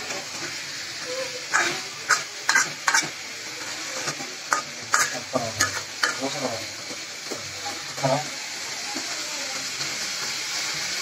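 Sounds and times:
chicken sizzling: 0.0 - 11.0
steel spatula scraping metal pot: 1.0 - 3.1, 4.0 - 6.6.

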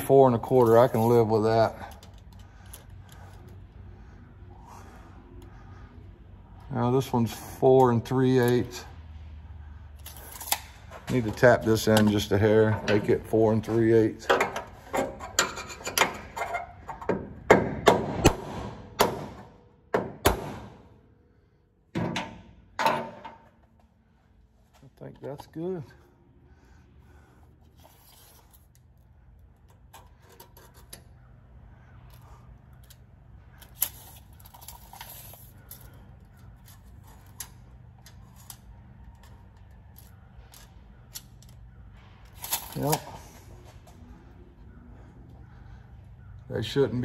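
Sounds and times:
low hum: 25.9 - 47.0.

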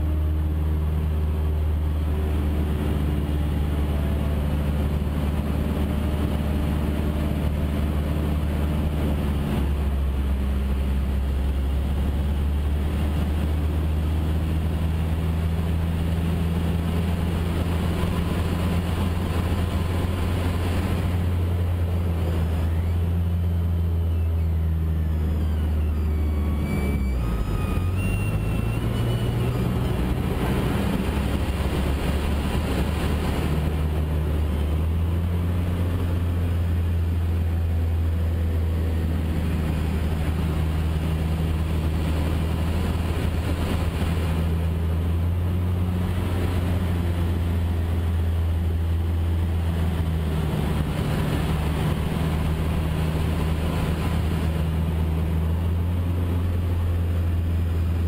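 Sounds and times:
light aircraft engine drone in cabin: 0.0 - 58.0.

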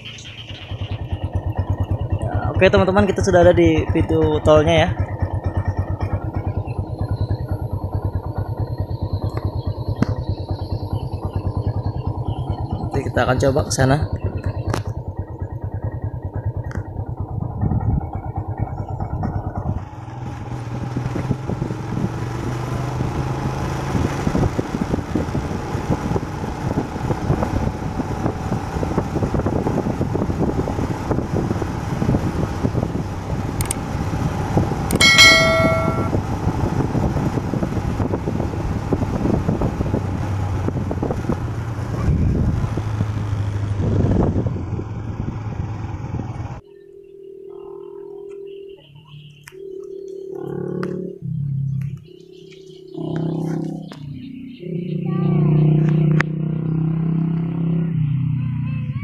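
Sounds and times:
motorcycle engine running: 0.0 - 59.0
wind noise on microphone: 17.4 - 18.2, 20.6 - 22.2, 23.9 - 46.6
short bell-like ding: 34.9 - 36.2.

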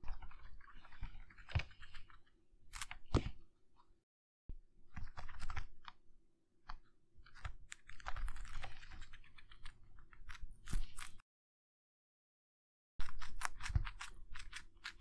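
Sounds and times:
guinea pig chewing celery: 7.3 - 11.2, 13.0 - 15.0.

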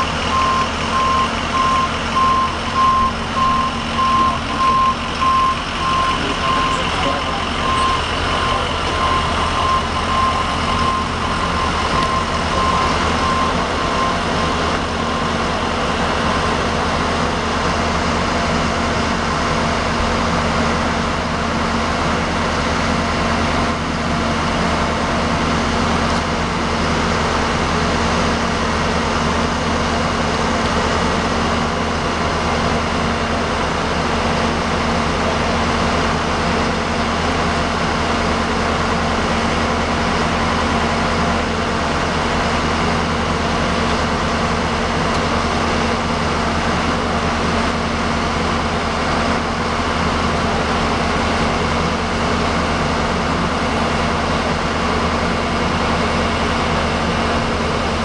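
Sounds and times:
reversing beeper: 0.0 - 15.8
truck engine idling: 0.0 - 58.0.

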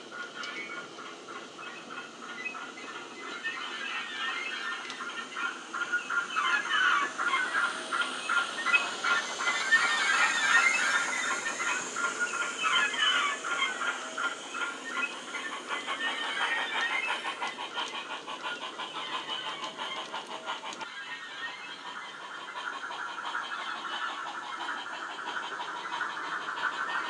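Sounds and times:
steam locomotive chuffs and hiss: 0.0 - 27.0
model wagon wheels clicking on track: 6.2 - 27.0.

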